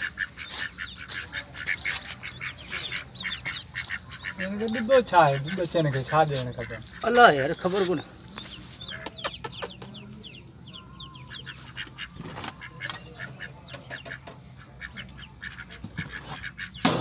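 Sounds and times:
ducklings peeping: 0.0 - 17.0.

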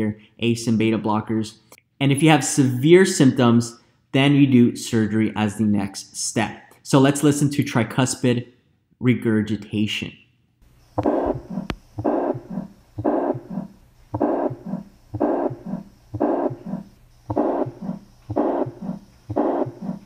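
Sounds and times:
heart murmur: 11.0 - 20.0
heartbeat: 11.0 - 20.0.

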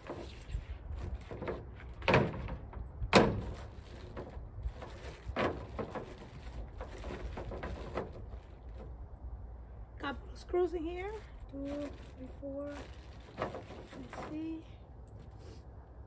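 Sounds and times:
wind rumbling on microphone: 0.0 - 16.0
bag rustling: 11.0 - 14.5.

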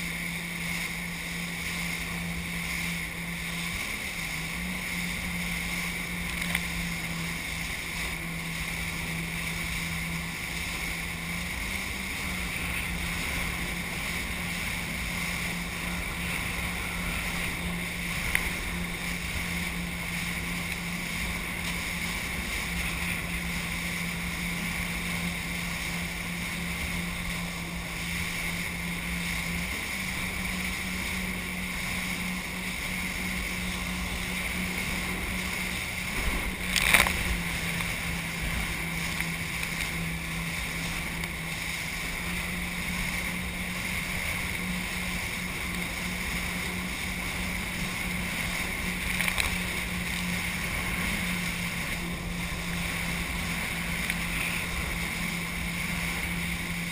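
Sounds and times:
jet ski engine running: 0.0 - 56.9
rushing water and spray: 0.0 - 56.9
loud splash: 34.6 - 42.8.

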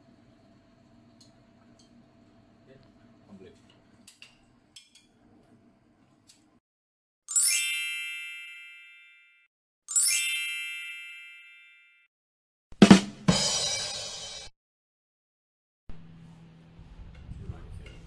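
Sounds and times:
bright chime sound effect: 7.3 - 12.1.

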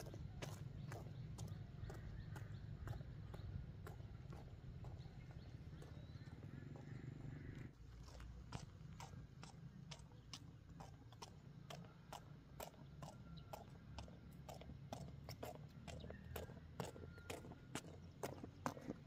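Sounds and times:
faint ticking footsteps: 0.0 - 19.0.

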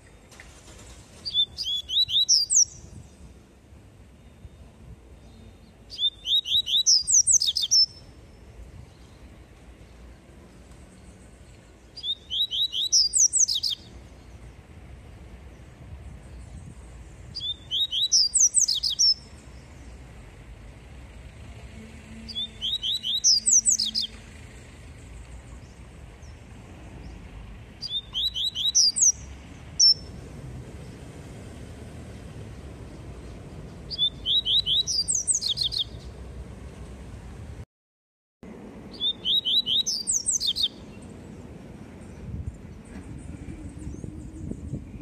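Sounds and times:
bird singing high whistled notes: 1.2 - 3.2, 4.2 - 8.2, 11.9 - 13.9, 17.3 - 19.7, 22.2 - 24.2, 27.8 - 30.1, 33.9 - 36.1, 38.9 - 41.0.

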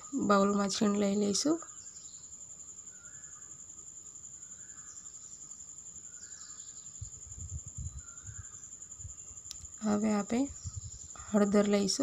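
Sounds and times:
high-pitched insect trill: 0.0 - 12.0.

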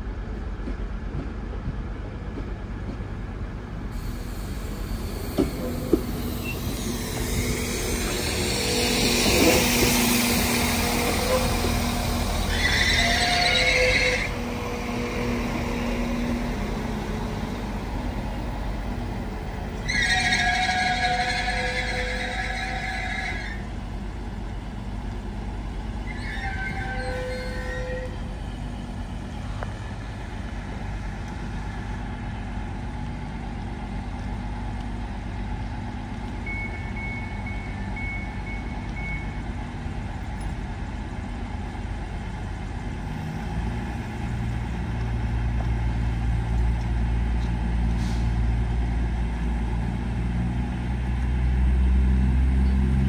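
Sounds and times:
diesel engine rumble: 0.0 - 53.0
high squeal: 4.5 - 15.2, 26.0 - 28.9.

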